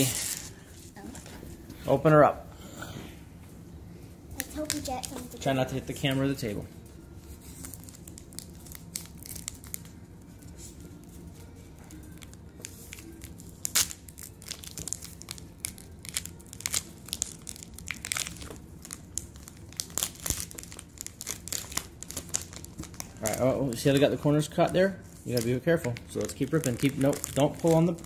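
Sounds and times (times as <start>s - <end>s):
wrapper crinkling and tearing: 0.0s - 0.5s, 7.4s - 10.4s, 11.9s - 28.0s.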